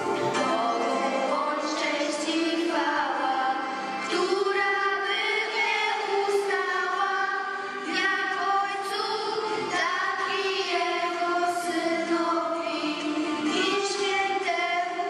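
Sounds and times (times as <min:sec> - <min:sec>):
children's choir singing: 0:00.0 - 0:15.0.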